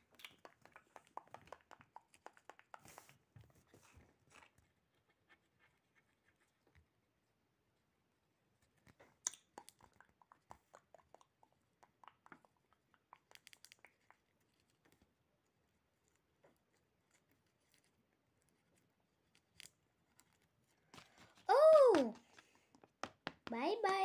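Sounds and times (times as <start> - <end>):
paper cutout crinkling and crackling: 12.3 - 24.0.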